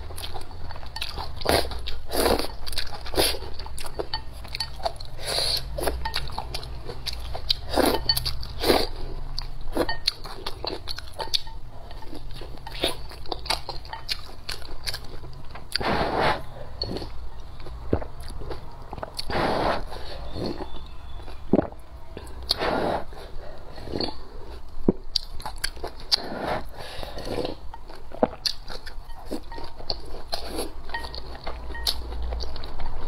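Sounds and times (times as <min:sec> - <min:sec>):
wet chewing with smacks: 0:27.3 - 0:33.0.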